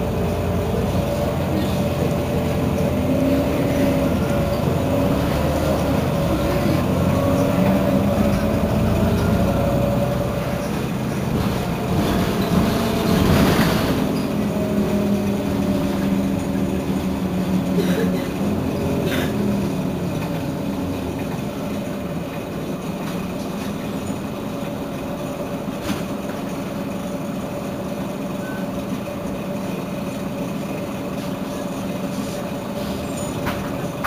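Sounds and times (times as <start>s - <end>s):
city bus engine running: 0.0s - 34.0s.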